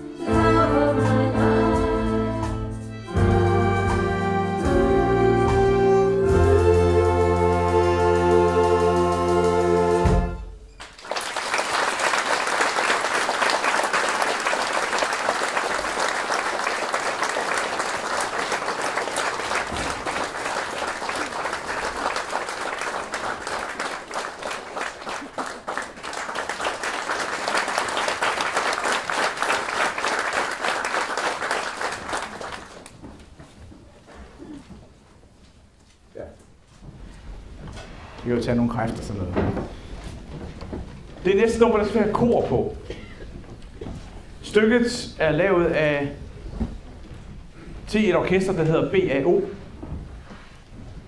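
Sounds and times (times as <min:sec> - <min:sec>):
audience applauding: 0:10.7 - 0:33.1.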